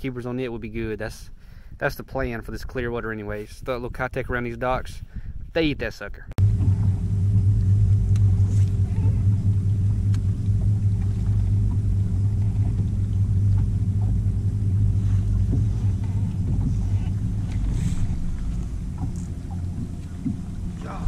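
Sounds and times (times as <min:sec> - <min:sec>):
electric trolling motor humming: 0:06.4 - 0:21.0.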